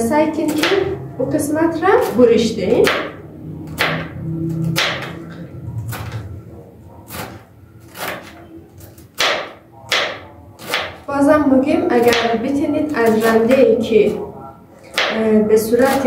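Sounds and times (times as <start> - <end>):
knife chopping cabbage: 0.4 - 0.9, 1.9 - 6.2, 7.0 - 11.1, 12.0 - 13.7, 14.8 - 16.0.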